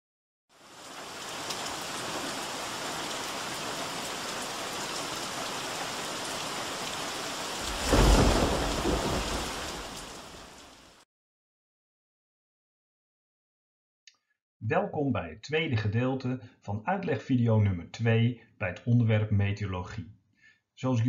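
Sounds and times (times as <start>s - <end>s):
heavy rain: 0.5s - 11.0s
loud thunderclap: 7.6s - 10.5s.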